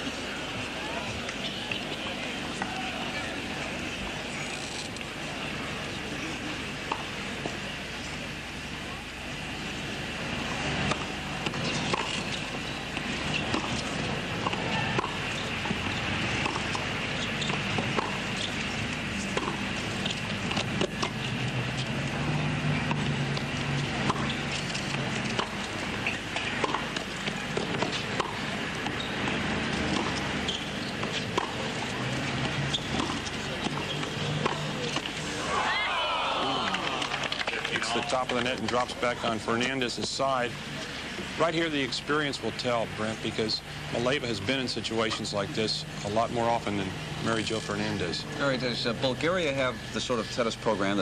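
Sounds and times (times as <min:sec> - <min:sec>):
tennis racket strikes and bounces: 0:15.8 - 0:18.4, 0:19.3 - 0:21.9, 0:22.9 - 0:31.6, 0:32.4 - 0:35.1.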